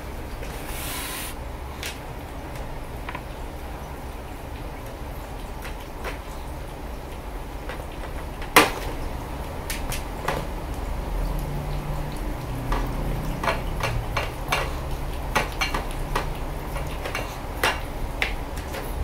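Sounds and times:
bowl clicks and clacks: 0:12.6 - 0:19.0.

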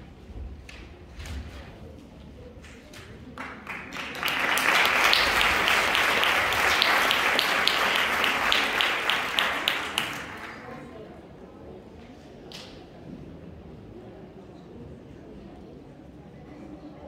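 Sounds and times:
audience applauding: 0:03.4 - 0:10.9.

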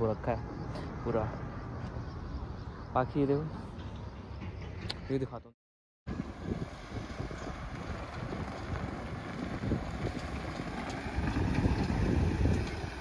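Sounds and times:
wind buffeting microphone: 0:06.1 - 0:13.0.

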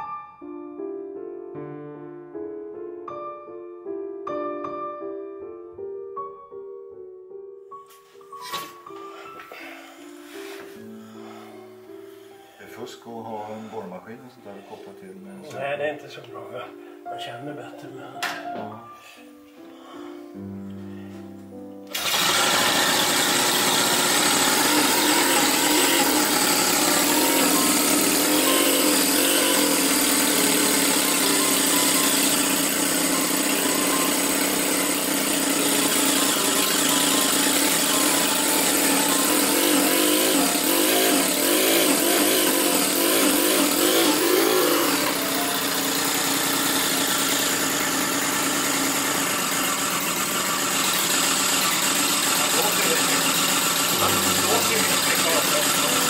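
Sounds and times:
model engine running: 0:21.9 - 0:56.0.

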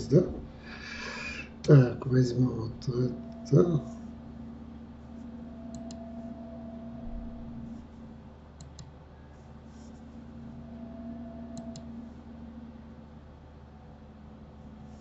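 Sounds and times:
steady low hum: 0:00.0 - 0:15.0
computer mouse clicks: 0:05.7 - 0:06.0, 0:08.6 - 0:08.9, 0:11.5 - 0:11.9.

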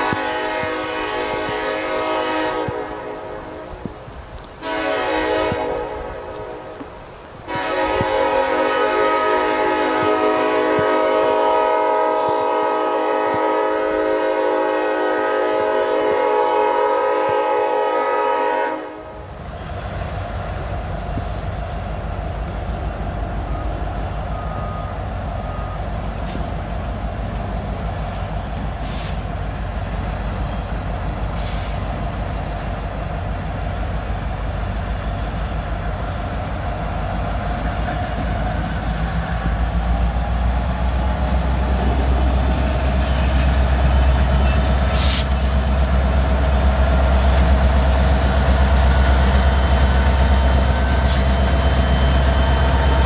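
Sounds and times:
locomotive horn chord: 0:00.0 - 0:03.8, 0:04.6 - 0:06.6, 0:07.5 - 0:19.3
rain: 0:00.0 - 0:53.0
train rumbling: 0:00.0 - 0:53.0.

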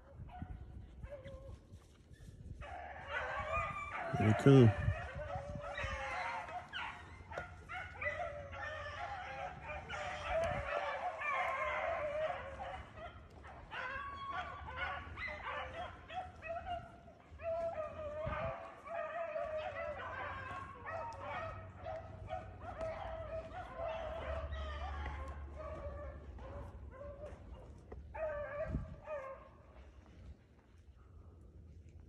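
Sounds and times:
pack of hounds baying: 0:02.6 - 0:30.1.

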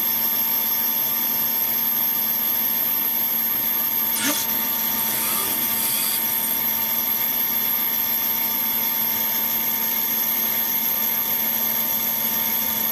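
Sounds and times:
machine hum and whine: 0:03.9 - 0:08.0.

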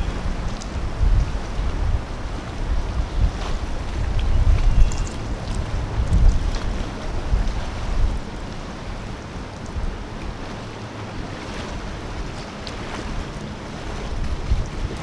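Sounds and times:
waves lapping against shore: 0:00.0 - 0:15.0
wind buffeting microphone: 0:00.0 - 0:15.0.

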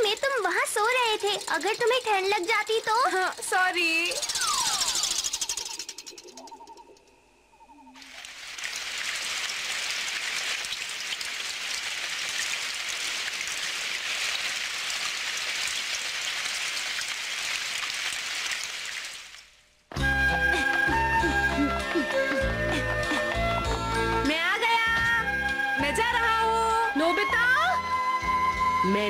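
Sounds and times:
cartoon rain sound effect: 0:04.0 - 0:06.4, 0:08.0 - 0:19.5
music: 0:19.9 - 0:29.0.

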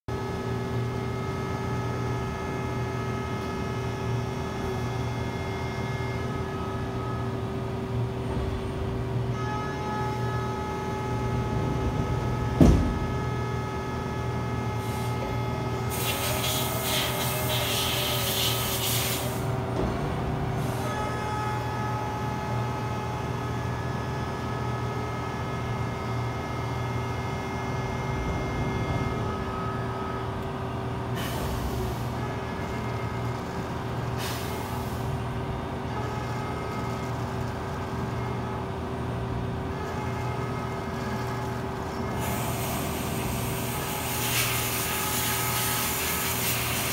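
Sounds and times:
milling machine spindle whine: 0:13.2 - 0:31.0
coolant hissing burst: 0:15.9 - 0:19.5, 0:42.2 - 0:46.9.

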